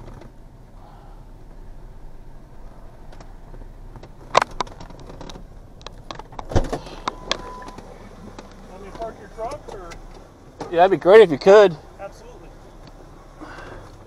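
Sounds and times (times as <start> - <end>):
clicks and knocks of seat movement: 0.0 - 0.4, 2.7 - 11.4, 12.8 - 14.0
pickup truck idling: 0.0 - 14.0
thump: 6.4 - 7.5
thin steady tone: 6.9 - 8.2.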